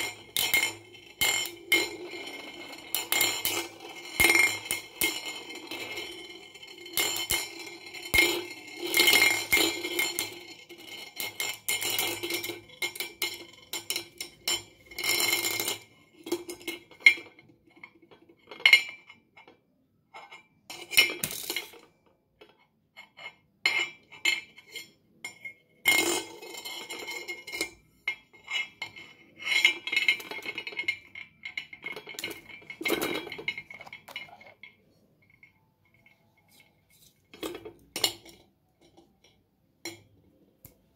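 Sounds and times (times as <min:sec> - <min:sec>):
metal spinning tops clashing: 0:00.0 - 0:15.8, 0:25.9 - 0:34.8.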